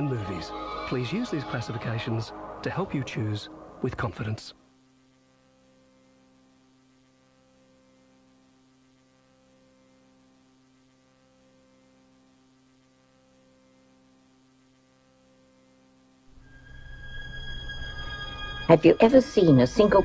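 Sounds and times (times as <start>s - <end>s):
faint electrical hum: 0.0s - 20.0s
tape hiss: 0.0s - 20.0s.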